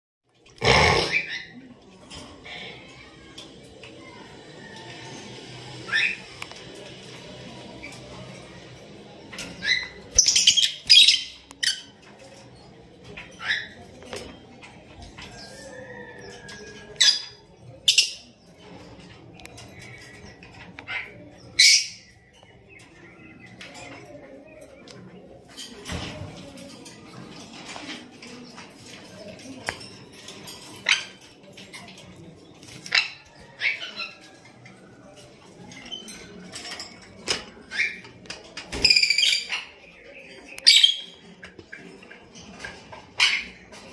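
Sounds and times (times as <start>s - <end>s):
lovebirds chattering calls: 0.5s - 1.6s, 7.8s - 24.9s.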